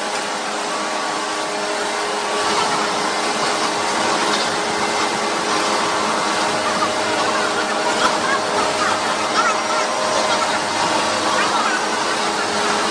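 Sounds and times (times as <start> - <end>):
processing machinery whirring: 0.0 - 12.9.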